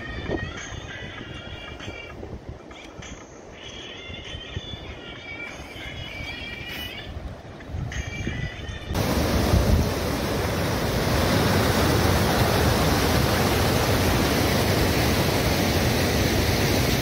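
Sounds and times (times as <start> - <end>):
wind buffeting microphone: 7.1 - 17.0.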